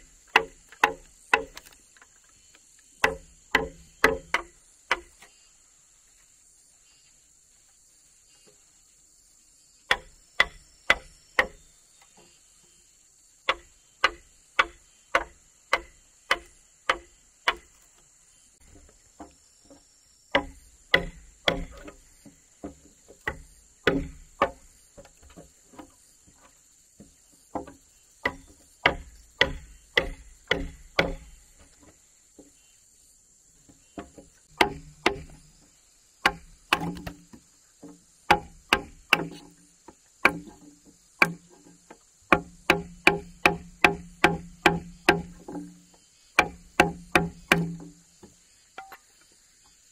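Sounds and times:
hammer striking chisel into wood: 3.0 - 5.1, 13.5 - 17.7, 20.3 - 21.9, 23.2 - 24.6, 27.6 - 31.4, 34.5 - 35.4, 36.2 - 37.2, 38.3 - 39.4, 42.3 - 45.7, 46.4 - 47.9.

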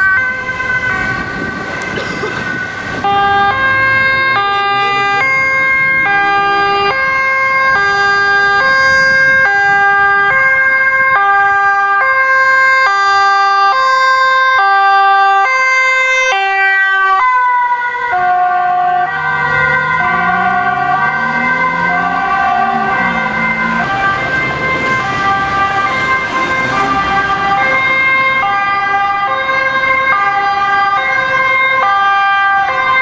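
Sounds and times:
ambulance two-tone siren: 0.0 - 33.0
vehicle engine: 0.4 - 10.6, 17.0 - 33.0.

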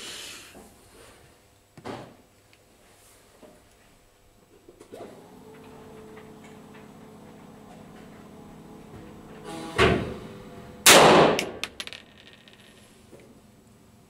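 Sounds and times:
pistol shots: 10.9 - 11.6.

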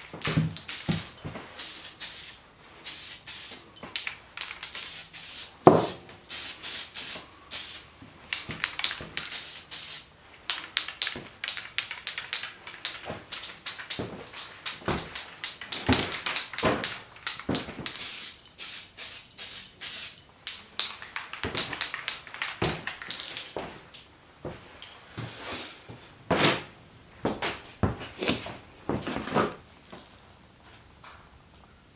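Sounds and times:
spray can hissing: 0.6 - 7.9, 8.6 - 20.2.

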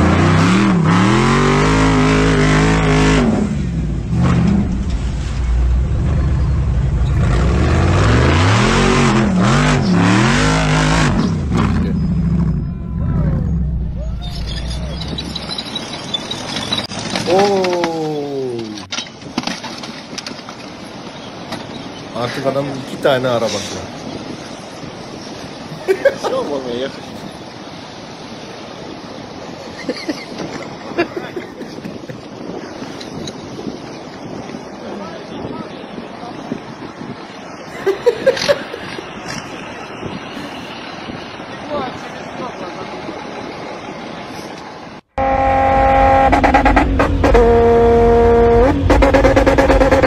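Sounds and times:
wind and surf: 0.0 - 45.2
road and wind rumble: 0.0 - 50.0
sea waves washing on shore: 14.5 - 45.1
wind on microphone: 28.8 - 42.0
car droning tone: 45.2 - 50.0.

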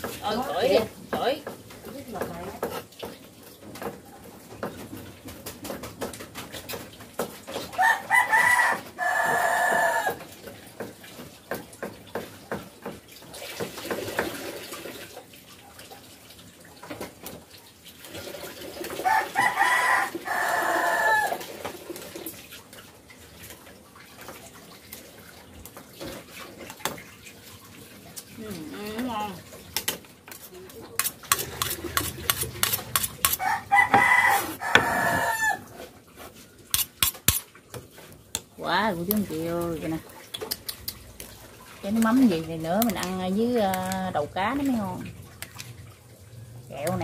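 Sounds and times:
rooster crowing: 7.7 - 10.2, 19.0 - 21.5, 33.3 - 35.8
cleaver chopping on wooden board: 31.3 - 35.3.

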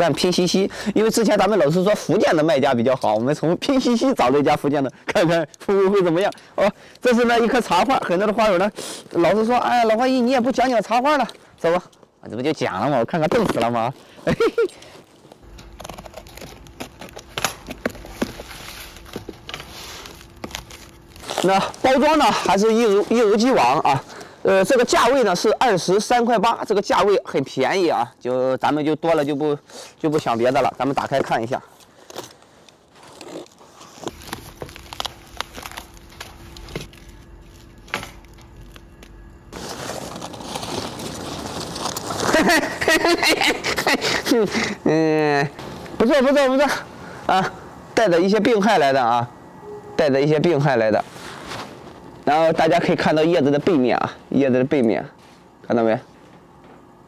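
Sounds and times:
tape and cardboard crackles: 13.1 - 24.3, 30.0 - 44.3
paper and plastic crinkling: 13.2 - 24.3, 30.1 - 44.7
cardboard box tearing open: 39.6 - 43.2.

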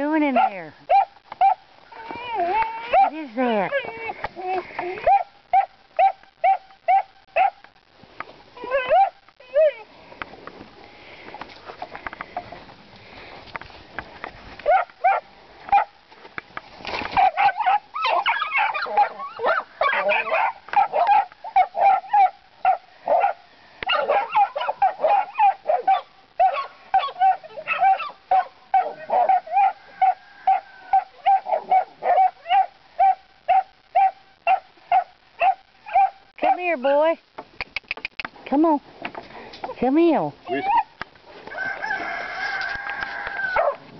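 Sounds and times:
puppies yapping: 0.3 - 7.6, 17.1 - 36.6, 41.8 - 43.8.

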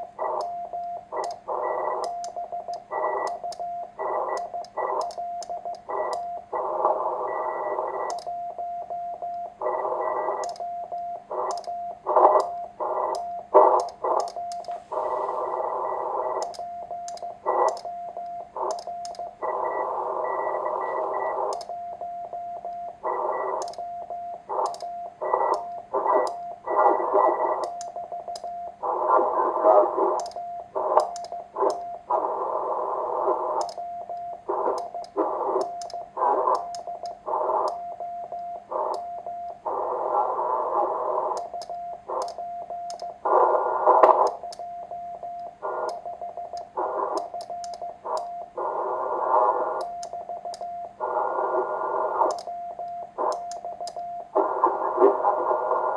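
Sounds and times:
morse code tone: 0.2 - 40.4
radio receiver hiss: 12.1 - 16.5, 28.8 - 33.8, 34.4 - 37.8, 43.2 - 44.5, 46.7 - 47.4, 48.0 - 49.9, 51.0 - 52.5, 53.2 - 55.9
sharp radio pops: 43.3 - 44.4.

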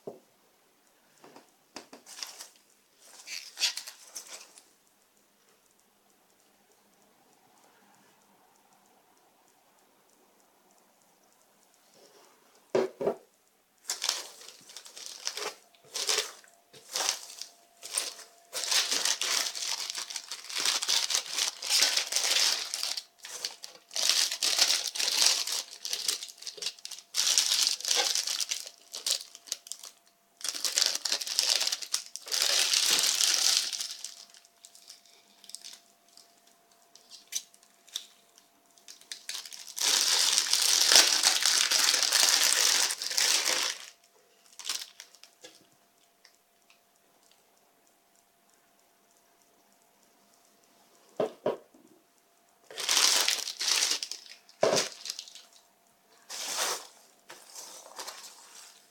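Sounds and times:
plastic wrap crinkling: 1.2 - 4.7, 13.8 - 45.7, 52.6 - 58.9
packing peanuts squeaking and crunching: 2.1 - 4.6, 13.8 - 36.3, 37.0 - 45.4, 52.7 - 55.6.

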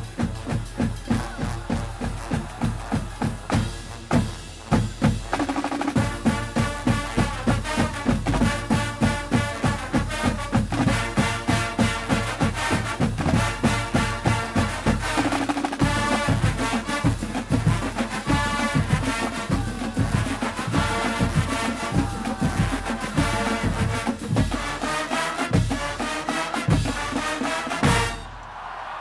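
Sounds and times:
marching bass drums: 0.0 - 28.2
brass band playing: 0.0 - 28.9.

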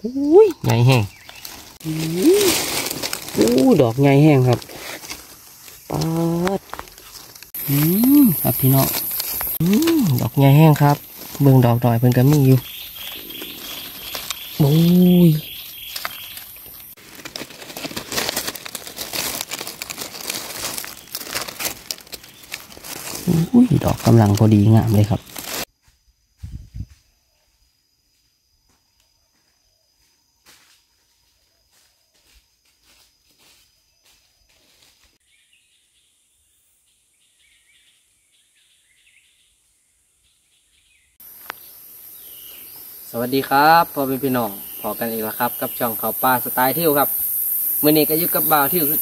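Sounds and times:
small birds chirping: 0.0 - 17.0, 18.2 - 25.6, 40.2 - 49.0
dry leaf litter crackling: 0.0 - 25.7
high insect drone: 0.0 - 35.0, 41.2 - 49.0.

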